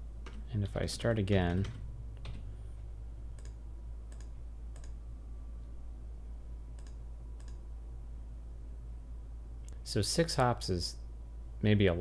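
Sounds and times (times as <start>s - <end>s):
steady low hum: 0.0s - 12.0s
computer mouse clicks: 3.3s - 5.0s, 6.8s - 7.6s.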